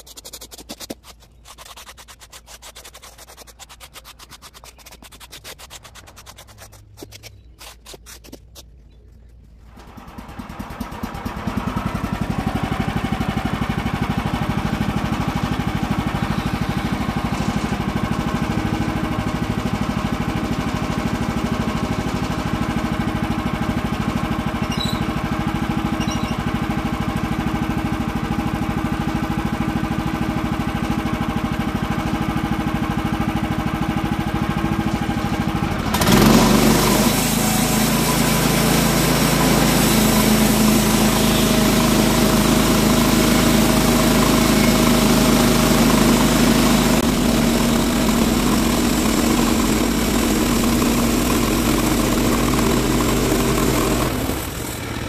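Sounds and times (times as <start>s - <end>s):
gasoline engine running: 9.6s - 55.0s
band saw cutting log hiss: 47.1s - 55.0s.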